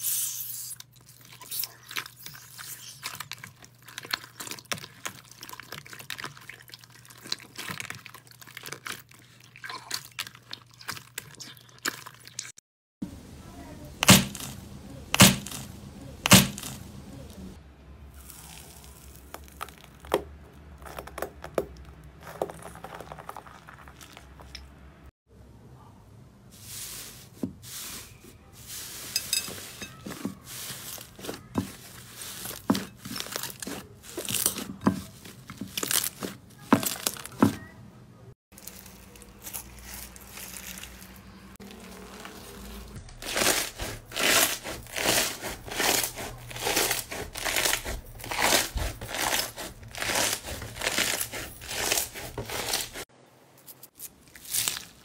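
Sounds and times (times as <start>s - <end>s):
crunchy slime crunching: 0.0s - 12.6s, 14.0s - 17.2s, 18.1s - 24.5s, 28.7s - 37.6s, 38.5s - 53.1s, 53.8s - 55.0s
slime popping and crackling: 43.0s - 53.0s, 54.0s - 55.0s.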